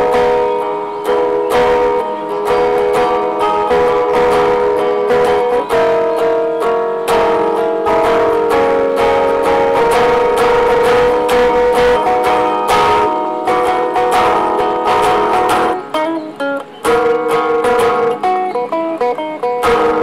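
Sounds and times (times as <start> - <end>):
fingerstyle electric guitar: 0.0 - 20.0.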